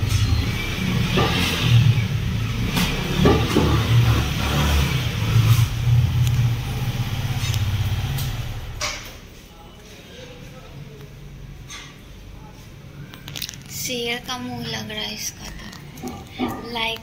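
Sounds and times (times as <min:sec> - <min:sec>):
motorcycle engine running: 0:00.0 - 0:08.8.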